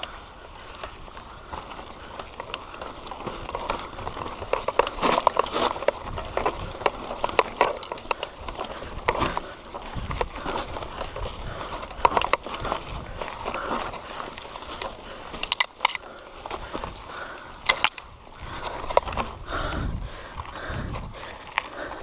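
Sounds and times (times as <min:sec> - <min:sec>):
grass brushing against bike: 0:00.0 - 0:11.1, 0:12.2 - 0:18.2
mountain bike rattling: 0:00.0 - 0:22.0
wind rumble on microphone: 0:00.0 - 0:22.0.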